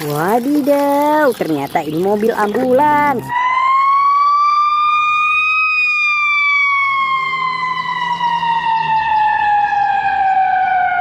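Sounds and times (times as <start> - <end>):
ambulance siren wailing: 2.4 - 11.0.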